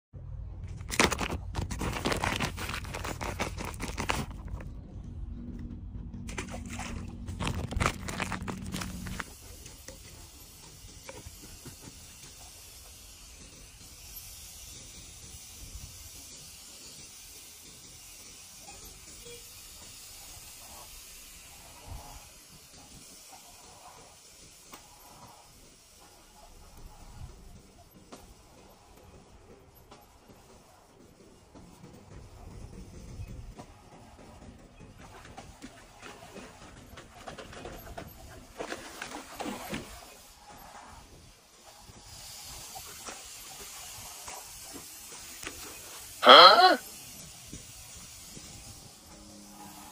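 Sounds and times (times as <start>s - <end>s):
foil packet crinkling: 0.7s - 4.7s, 6.3s - 9.4s.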